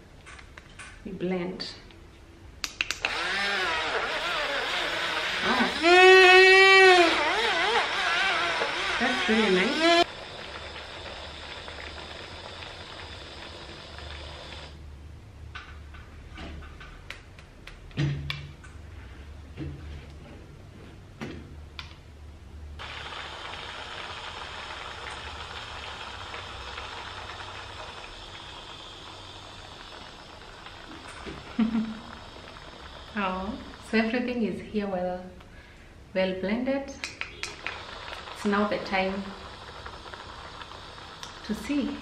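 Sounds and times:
handheld blender motor running: 3.0 - 14.8, 22.8 - 34.3, 37.6 - 42.0.

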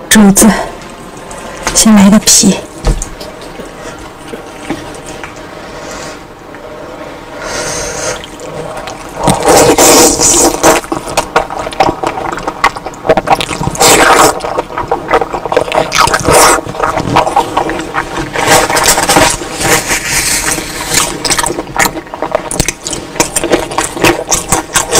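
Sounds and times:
wet chewing and slurping: 7.7 - 24.9.

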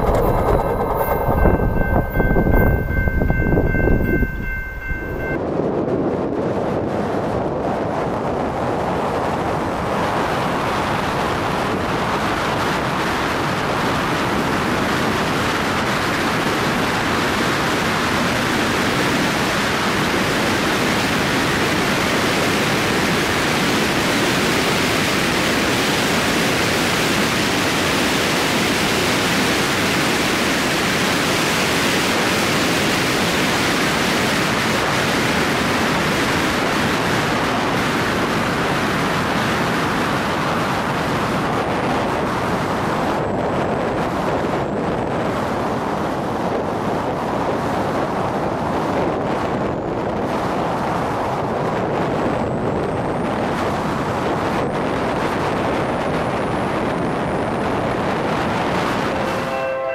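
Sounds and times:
car road noise: 0.0 - 5.4
wind rushing: 0.0 - 16.8.

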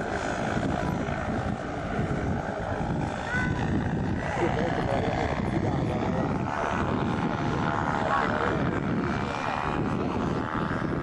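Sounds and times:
paramotor engine buzzing overhead: 0.0 - 11.0.

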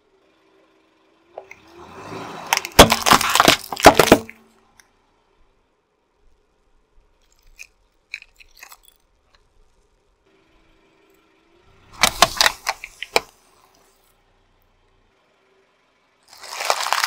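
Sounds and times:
wooden boxes crunching under tyre: 2.4 - 4.4, 16.3 - 17.0
light clicks of handled pieces: 7.2 - 9.8.

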